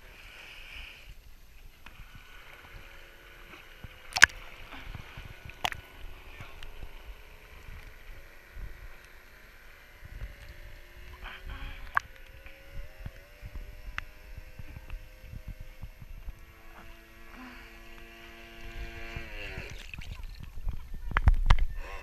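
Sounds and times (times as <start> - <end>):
model boat motor whine: 1.0 - 22.0
thumping buffeting microphone: 10.0 - 17.0.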